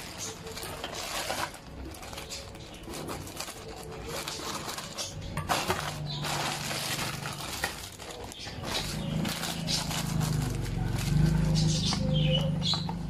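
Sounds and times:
plastic mailer crinkling: 0.0s - 12.8s
scissors cutting plastic: 0.0s - 13.0s.

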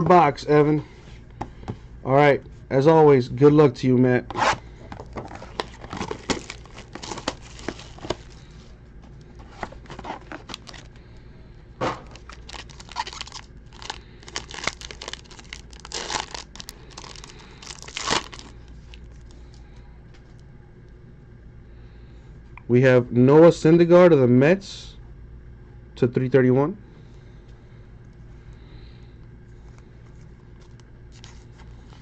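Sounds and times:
wrapper and cardboard crinkling: 5.1s - 8.4s, 9.4s - 11.0s, 12.0s - 19.3s
sharp ripping of packaging: 5.9s - 8.2s, 12.2s - 18.5s.

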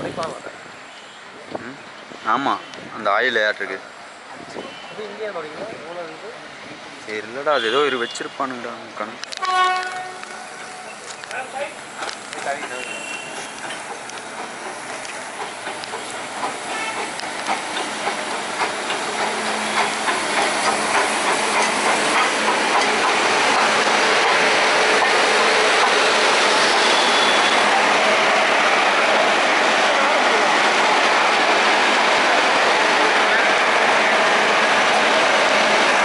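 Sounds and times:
steam hissing: 10.0s - 36.0s
steam locomotive chuffing: 10.0s - 36.0s.

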